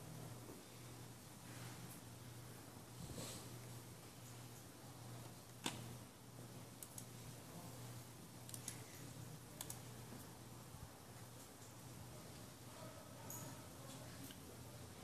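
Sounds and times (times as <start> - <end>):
faint low hum: 0.0 - 15.0
computer mouse clicking: 6.8 - 7.1, 8.4 - 8.9, 9.6 - 9.9.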